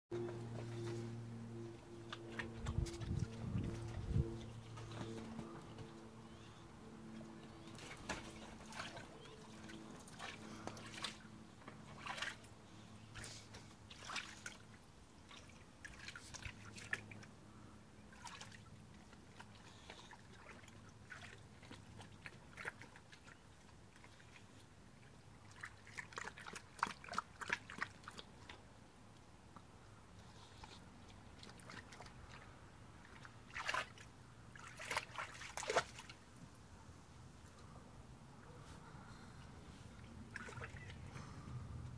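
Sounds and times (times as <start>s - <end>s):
dog splashing in water: 7.6s - 11.2s, 11.8s - 12.5s, 13.2s - 14.6s, 18.1s - 18.7s, 25.4s - 28.2s, 33.0s - 36.1s, 40.3s - 40.9s.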